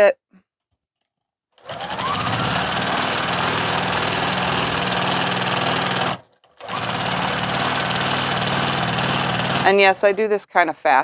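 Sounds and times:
sewing machine stitching: 0:01.6 - 0:10.3.

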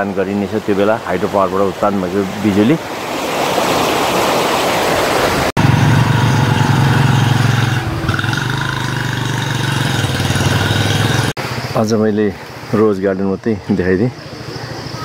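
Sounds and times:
rushing stream water: 0:00.0 - 0:15.0
low engine hum: 0:05.6 - 0:11.8.

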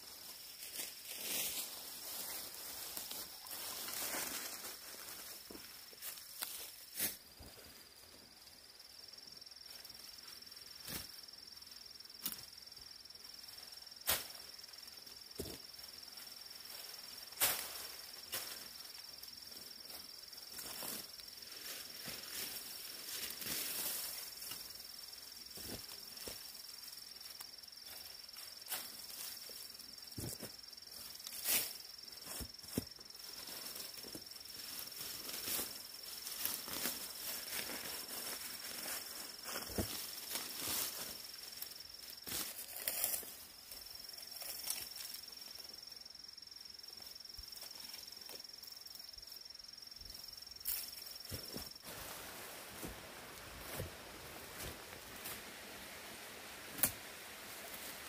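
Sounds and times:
insects chirring: 0:00.0 - 0:58.0
twigs snapping and brush rustling: 0:56.7 - 0:57.1.

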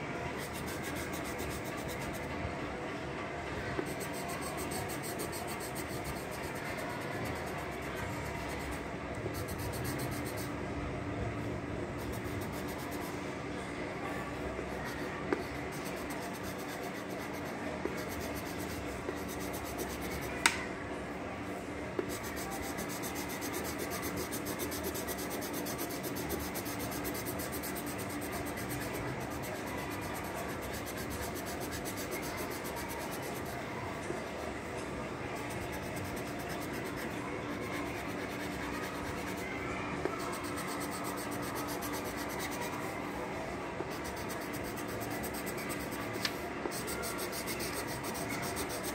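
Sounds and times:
pencil scratching on paper: 0:00.4 - 0:02.2, 0:03.8 - 0:10.5, 0:12.0 - 0:13.1, 0:14.8 - 0:20.3, 0:22.0 - 0:33.6, 0:35.4 - 0:39.4, 0:40.1 - 0:42.9, 0:43.9 - 0:48.9.

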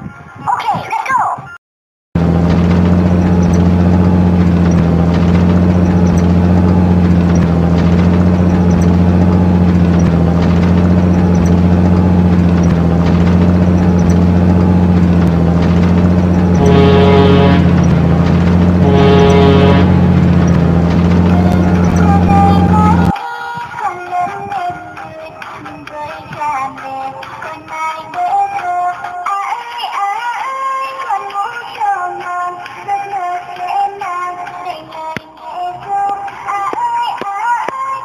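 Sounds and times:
heavy vehicle engine running: 0:02.2 - 0:23.2
flat horn blasts: 0:16.3 - 0:23.1.

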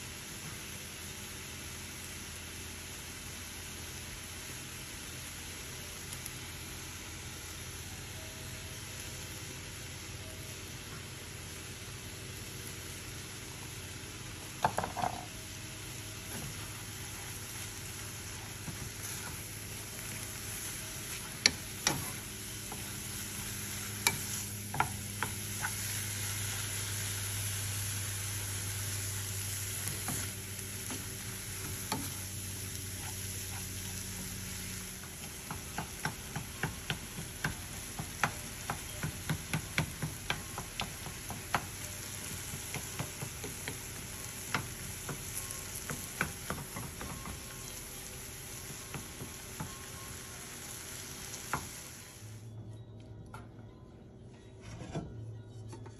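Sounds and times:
meat sizzling in a skillet: 0:00.0 - 0:52.4
spatula scraping and tapping pan: 0:21.1 - 0:26.6.

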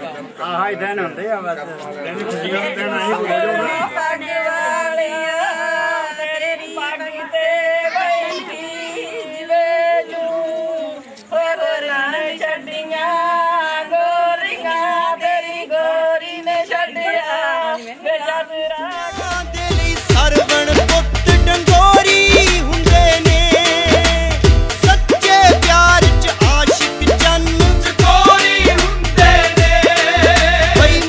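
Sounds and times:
women singing unaccompanied: 0:03.0 - 0:19.3.

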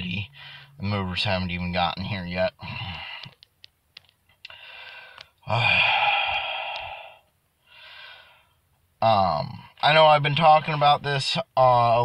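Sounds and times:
man sighing: 0:02.6 - 0:03.3, 0:04.5 - 0:08.4
mouth clicks: 0:03.1 - 0:07.2
soft breaths: 0:04.4 - 0:08.6.

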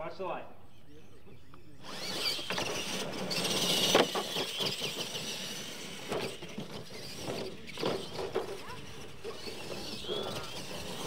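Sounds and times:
electric motors whining: 0:00.6 - 0:11.0.

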